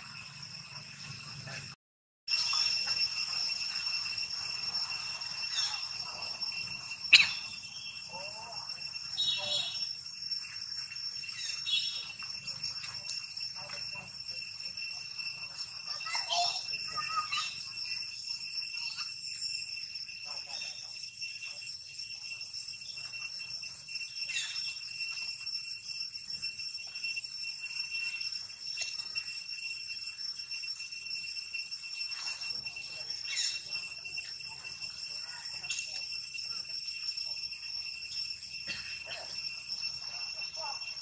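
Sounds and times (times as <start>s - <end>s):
high-pitched insect chorus: 0.0s - 41.0s.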